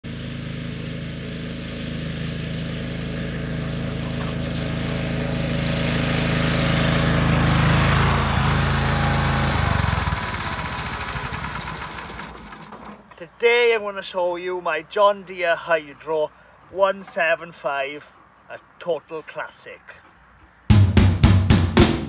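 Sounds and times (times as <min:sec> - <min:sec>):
lawn tractor engine running: 0:00.0 - 0:13.0.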